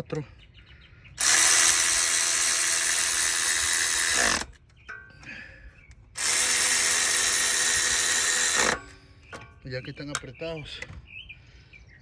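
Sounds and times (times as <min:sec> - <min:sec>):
cordless electric ratchet whirring: 0:01.2 - 0:04.6, 0:06.1 - 0:09.0.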